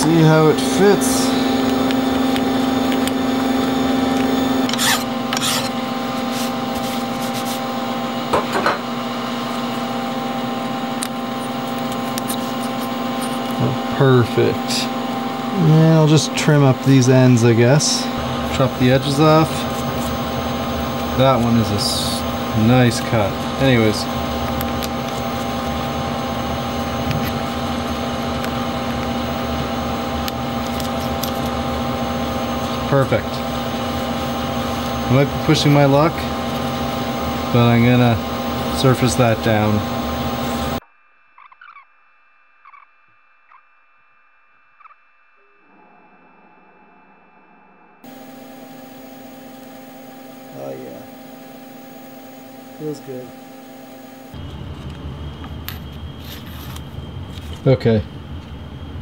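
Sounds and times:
steady hum: 0:00.0 - 0:59.0
cloth rubbing on steel tool: 0:04.8 - 0:07.7.

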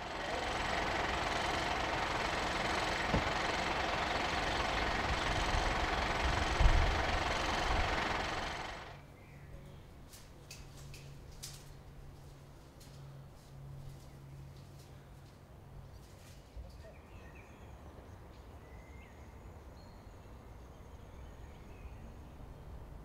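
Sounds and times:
engine idling rumble: 0:00.0 - 0:09.1.

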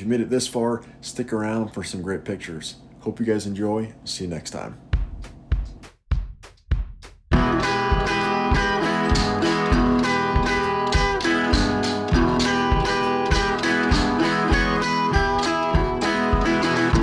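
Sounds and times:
guitar music with steady beat: 0:05.0 - 0:17.0.

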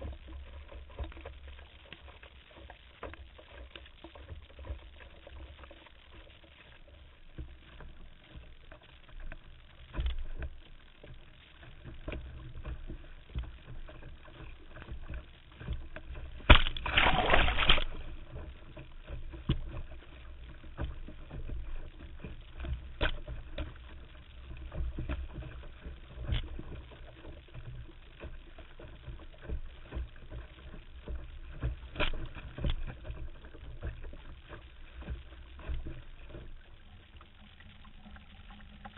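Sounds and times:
water rushing along a hull: 0:00.0 - 0:38.9
water slapping against hull: 0:00.0 - 0:38.9.

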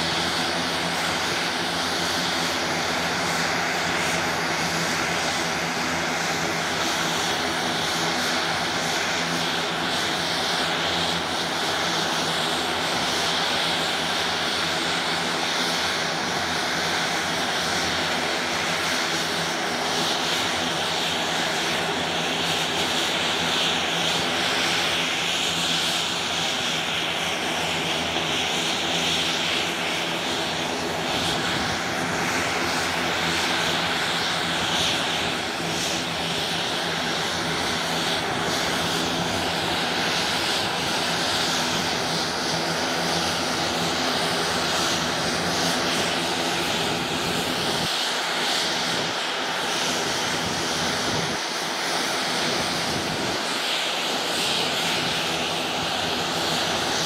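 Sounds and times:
propeller hum: 0:00.0 - 0:57.0
turboprop engine whine: 0:00.0 - 0:57.0.

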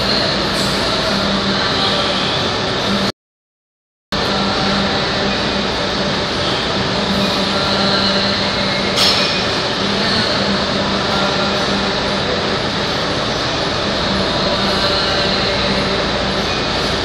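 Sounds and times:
ventilation rushing and humming: 0:00.0 - 0:03.1, 0:04.1 - 0:17.0
sharp clank: 0:09.0 - 0:09.7.

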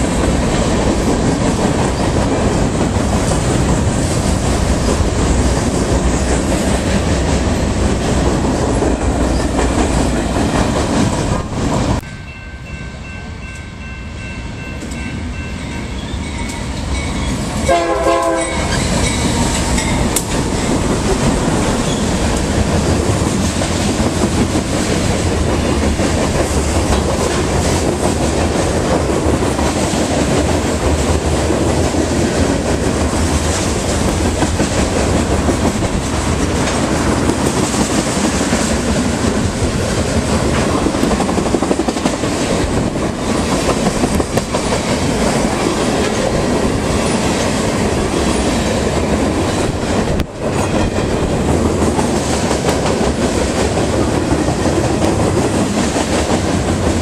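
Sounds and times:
freight cars rumbling on rails: 0:00.0 - 0:13.2, 0:13.8 - 0:57.0
locomotive horn blast: 0:17.6 - 0:18.8.

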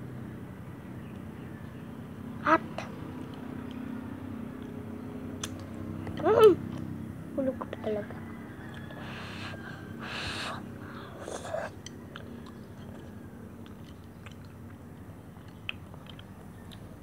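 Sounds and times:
person chewing: 0:08.7 - 0:17.0.

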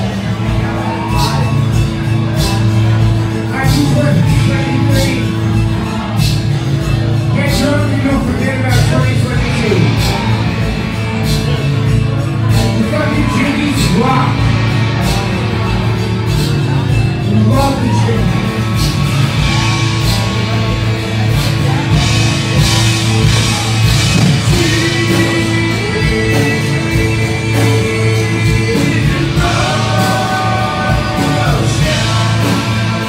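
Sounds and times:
drum beat: 0:00.0 - 0:33.0
live rock band playing: 0:00.0 - 0:33.0
person singing: 0:07.3 - 0:33.0.

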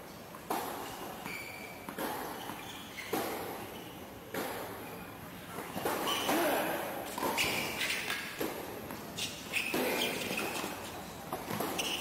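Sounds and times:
tennis ball struck by rackets: 0:03.1 - 0:03.5, 0:04.3 - 0:04.7, 0:05.8 - 0:06.4, 0:11.3 - 0:12.0.

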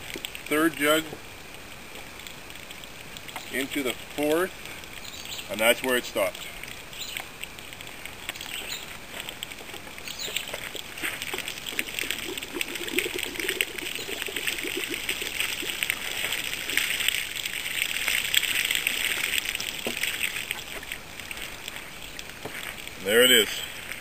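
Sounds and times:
water pouring and splashing: 0:00.0 - 0:24.0
plastic jug gurgling: 0:08.9 - 0:24.0.

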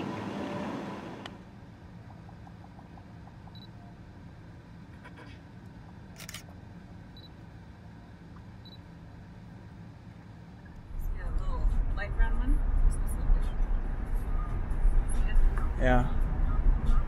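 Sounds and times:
low steady hum: 0:00.0 - 0:17.0
camera shutter click: 0:06.2 - 0:06.5.

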